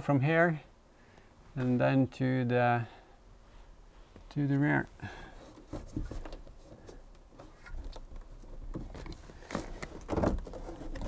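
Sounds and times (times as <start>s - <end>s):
cable rustling in headliner: 5.3s - 11.0s.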